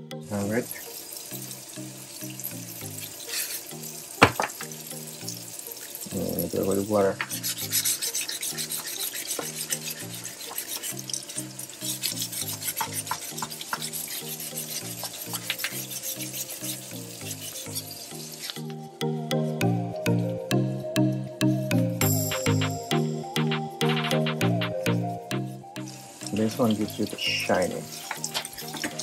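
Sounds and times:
background music: 0.0s - 29.0s
sandpaper rubbing on plaster: 7.2s - 11.1s, 11.8s - 18.5s.

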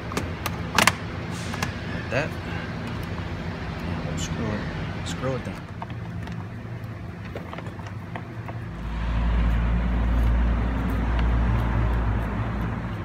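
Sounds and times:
steady low hum: 0.0s - 13.0s
deep rumble: 5.6s - 12.9s.

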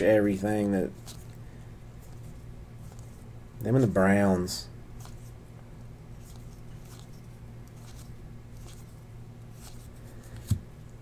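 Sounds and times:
steady low hum: 0.0s - 11.0s
trading cards rustling and clicking: 0.4s - 1.4s, 2.0s - 4.2s, 5.0s - 5.4s, 6.1s - 10.8s.

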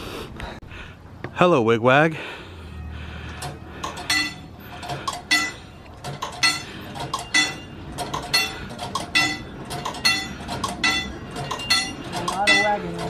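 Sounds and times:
crossing signal bell ringing: 2.6s - 13.0s.

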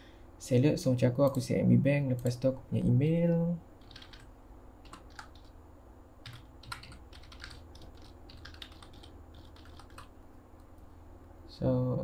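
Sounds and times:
low steady hum: 0.0s - 12.0s
typing on keyboard: 3.8s - 5.5s, 6.2s - 10.1s.

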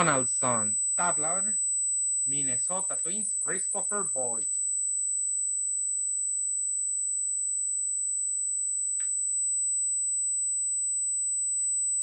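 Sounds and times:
high-pitched electronic whine: 0.0s - 1.6s, 2.3s - 4.6s.

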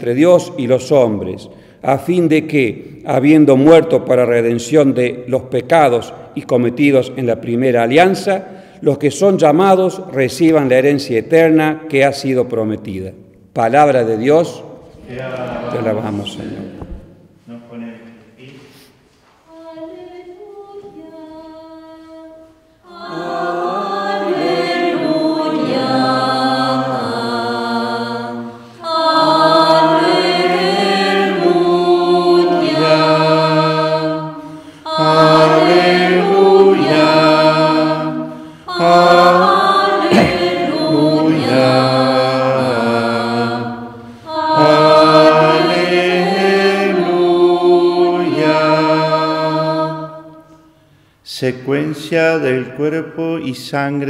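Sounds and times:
choir singing a chant: 14.9s - 17.0s, 19.5s - 50.7s
quiet sung or played notes: 19.5s - 50.8s.

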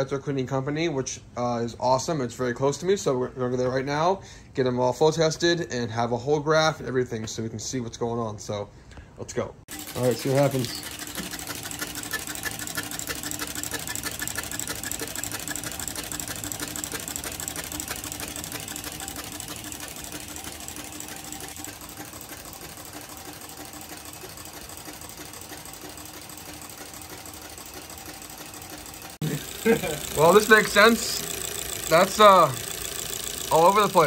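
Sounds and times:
fuel injectors clicking rapidly: 9.7s - 34.0s
steady hum: 9.7s - 34.0s.

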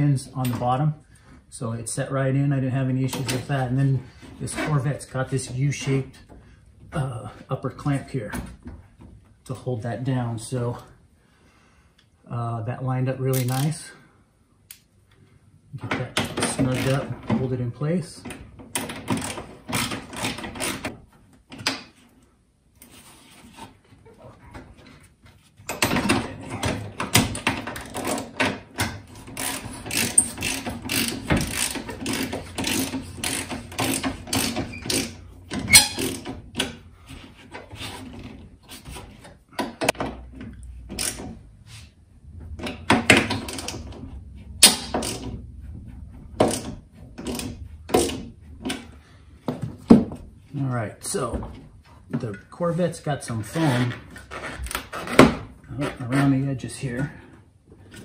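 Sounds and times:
ratchet wrench clicking: 29.3s - 35.1s.

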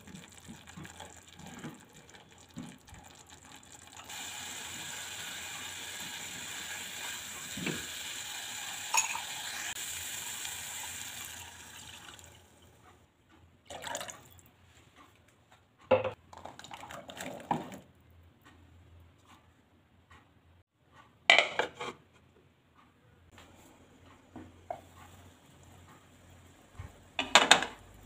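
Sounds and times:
water pouring into pan: 0.0s - 12.6s
spice paste sizzling in oil: 2.4s - 11.4s
bowl and utensils clattering: 8.9s - 9.3s.

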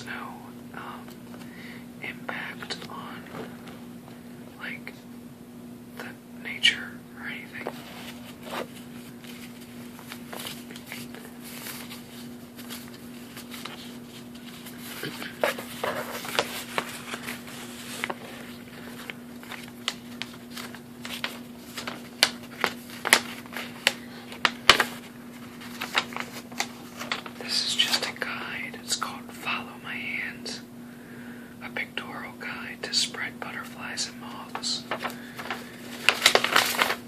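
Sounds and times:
steady low hum: 0.0s - 37.0s
paper sheets rustling and crackling: 7.6s - 28.4s, 33.9s - 37.0s.

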